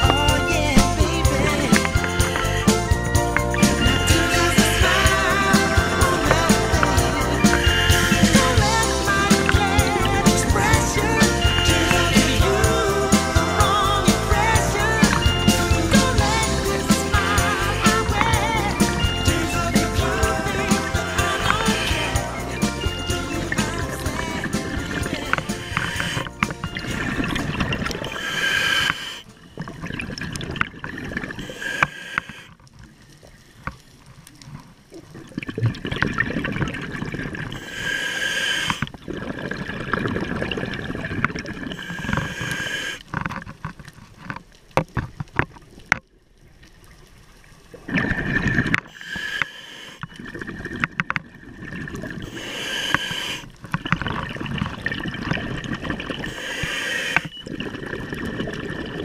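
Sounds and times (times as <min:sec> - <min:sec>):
diver breathing through regulator: 0:00.0 - 0:29.3, 0:31.2 - 0:32.6, 0:37.4 - 0:39.6, 0:41.4 - 0:43.2, 0:48.3 - 0:50.8, 0:52.0 - 0:53.7, 0:55.7 - 0:57.8.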